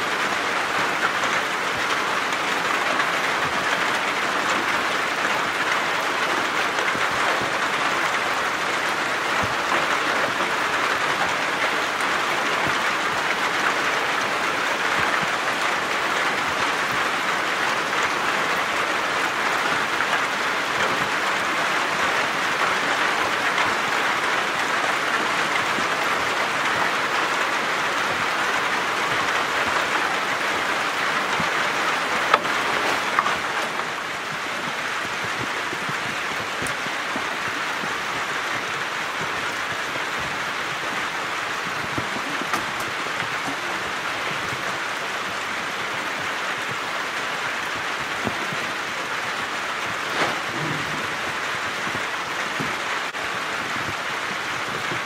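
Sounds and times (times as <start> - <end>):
rain on a metal roof: 0.0 - 55.0.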